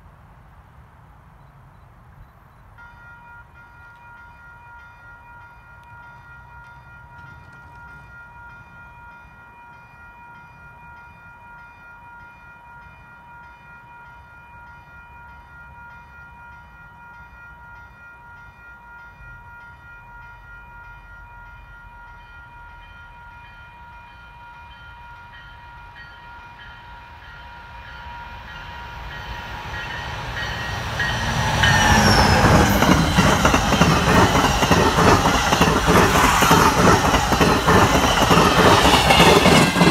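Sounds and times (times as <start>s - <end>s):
train wheels clattering on rail: 29.2s - 39.9s.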